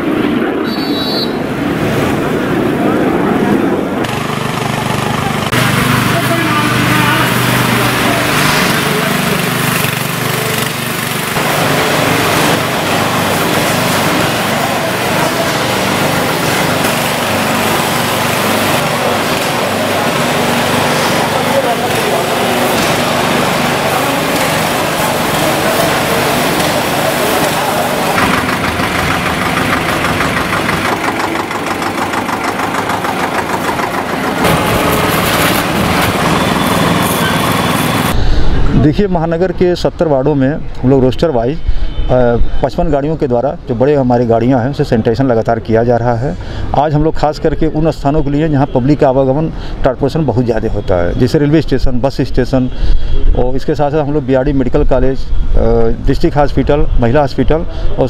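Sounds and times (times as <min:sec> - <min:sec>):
small engine running: 0:04.0 - 0:38.2
sprayer hiss: 0:05.6 - 0:38.2.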